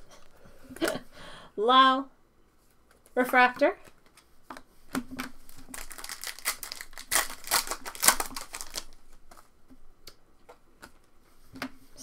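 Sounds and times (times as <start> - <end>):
foil wrapper crinkling: 5.2 - 9.5.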